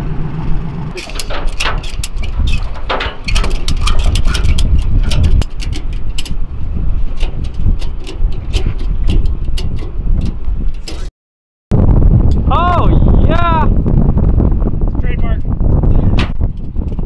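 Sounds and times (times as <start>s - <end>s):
heavy low rumble: 0.0s - 11.1s, 11.7s - 17.0s
ratchet strap clicking: 1.0s - 11.1s.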